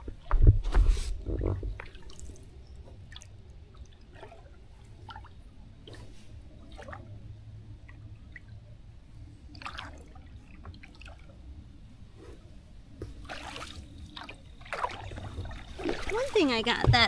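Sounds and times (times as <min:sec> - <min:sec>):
paddle pulling through water: 0:00.0 - 0:08.4, 0:09.1 - 0:17.0
water dripping and splashing: 0:01.4 - 0:06.0, 0:09.5 - 0:11.3, 0:13.0 - 0:17.0.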